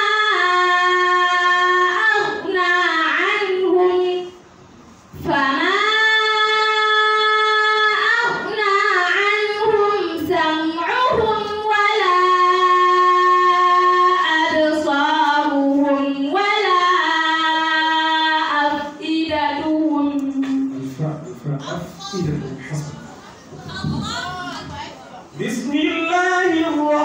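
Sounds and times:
woman chanting melodically: 0.0s - 4.4s, 5.1s - 20.8s.

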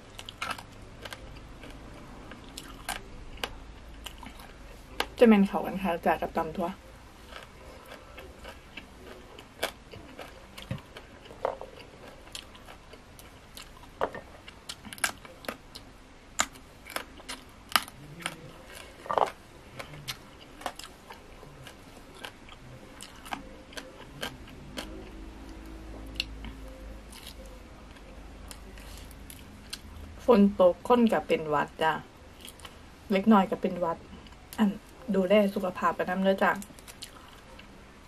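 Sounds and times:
person chewing crunchy food: 0.0s - 5.2s, 7.1s - 30.0s, 36.6s - 37.8s.

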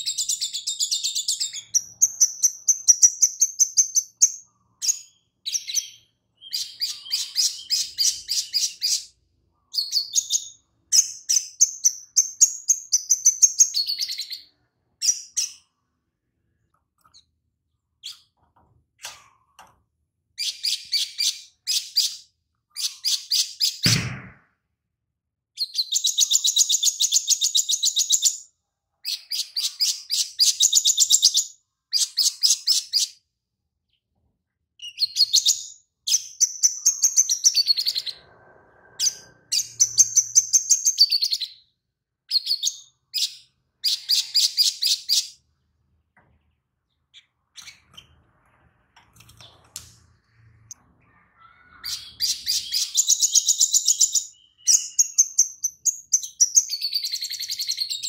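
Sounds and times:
sunbird singing trills and chatters: 51.1s - 58.0s.

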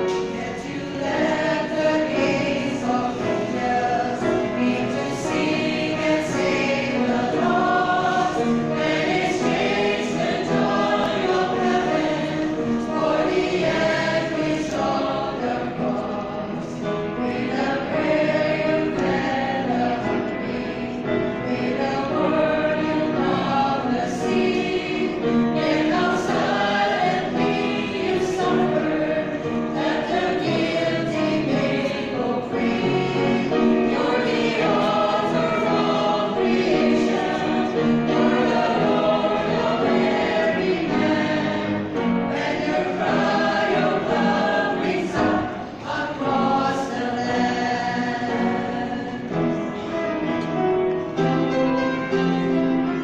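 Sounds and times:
choir singing a hymn: 0.0s - 53.0s.

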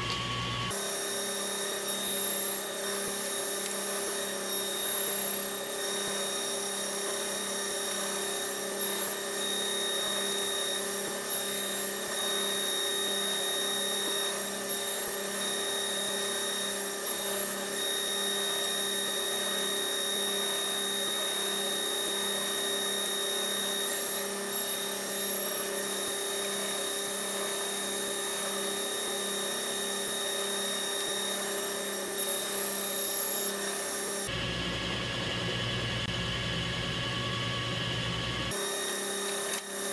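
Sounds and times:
machine motor hum and whine: 0.0s - 39.9s.

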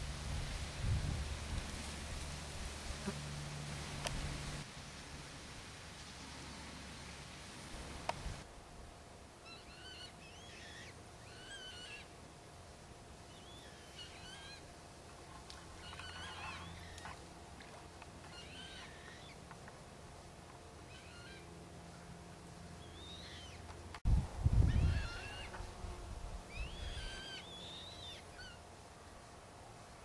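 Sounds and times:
faint steady hum: 0.0s - 30.0s
bird chirping: 13.3s - 14.6s, 22.8s - 23.6s, 26.5s - 28.6s.

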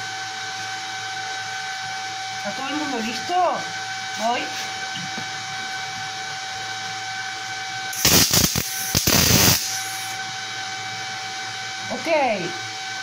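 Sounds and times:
steady background hum: 0.0s - 13.0s
welding arc hissing crackle: 7.9s - 10.2s.

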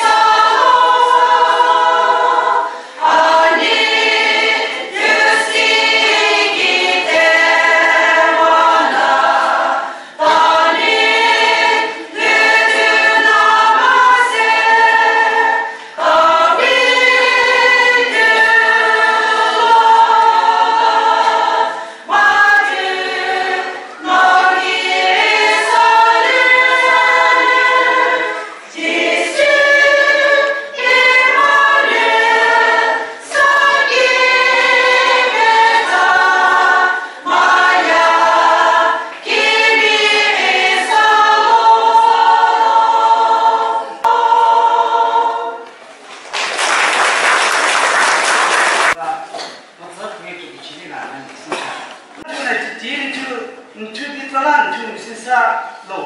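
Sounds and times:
women's choir singing: 0.0s - 45.9s
applause: 46.0s - 49.0s.

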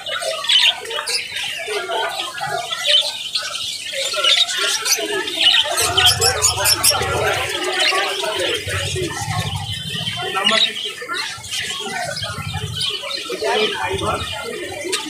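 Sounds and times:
budgerigars chattering: 2.6s - 14.6s
low rumble: 5.8s - 7.6s, 8.4s - 10.6s, 11.2s - 13.0s.

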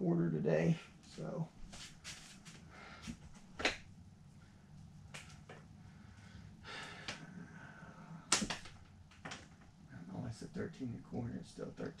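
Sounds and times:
man breathing through nose: 5.8s - 8.3s.

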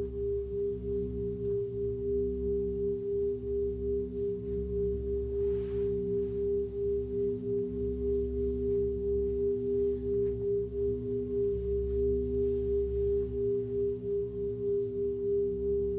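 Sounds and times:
drone of pure tones: 0.0s - 15.9s
low hum: 0.0s - 15.9s.

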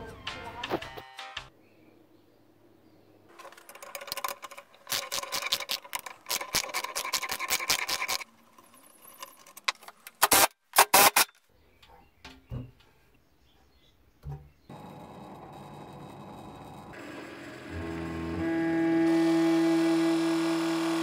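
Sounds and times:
ratchet wrench clicking: 3.4s - 9.6s.

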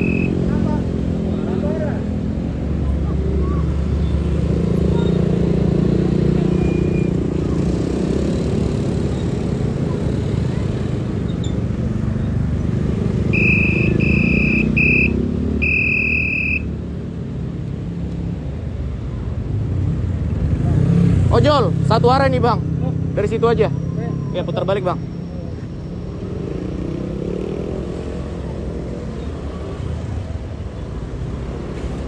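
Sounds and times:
short high electronic beeps: 0.0s - 0.5s, 13.4s - 16.7s
motorcycle engines: 0.0s - 32.0s
street traffic: 0.0s - 32.0s.

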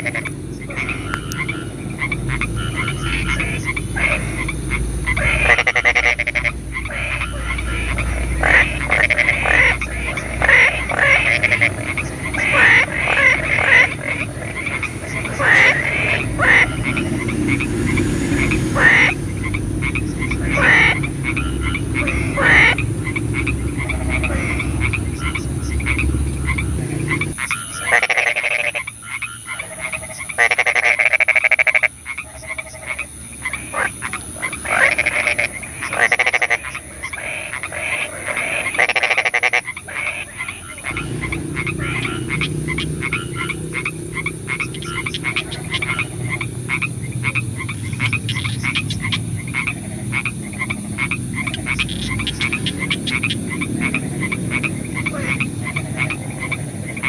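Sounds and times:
low rumble: 0.0s - 27.5s
frogs croaking: 0.0s - 57.0s.

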